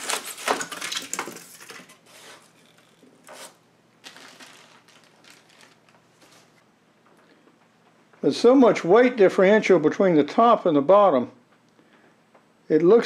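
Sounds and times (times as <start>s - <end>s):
packing rustling: 0.0s - 6.6s
styrofoam and cardboard scraping: 0.0s - 6.6s.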